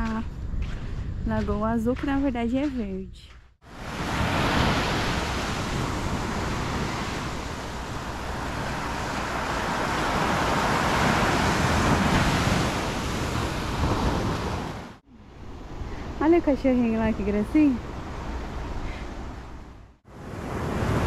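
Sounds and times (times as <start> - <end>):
waves breaking on sandy beach: 3.6 - 15.0, 20.1 - 21.0.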